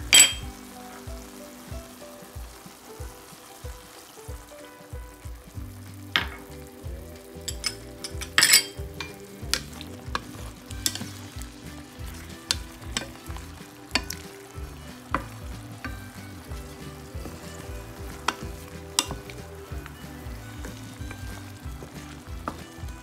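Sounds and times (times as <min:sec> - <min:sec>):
spatula scraping and knocking pan: 0:00.0 - 0:06.5, 0:07.5 - 0:23.0
squid sizzling in frying pan: 0:00.0 - 0:23.0.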